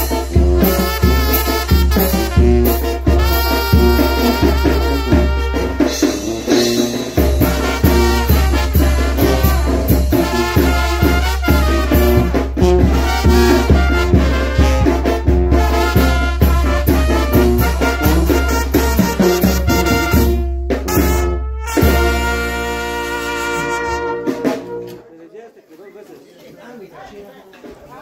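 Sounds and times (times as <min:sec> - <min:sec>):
trumpets playing lively tune: 0:00.0 - 0:25.1.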